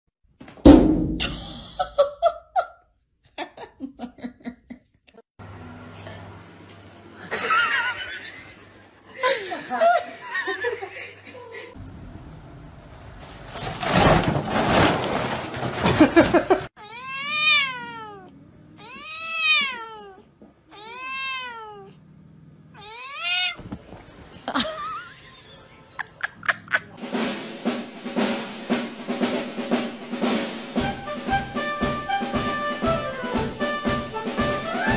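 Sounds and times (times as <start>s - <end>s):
person laughing: 1.2s - 5.2s, 7.2s - 11.8s, 15.8s - 16.7s, 24.3s - 27.0s
cat meowing: 16.8s - 22.0s, 22.7s - 23.6s.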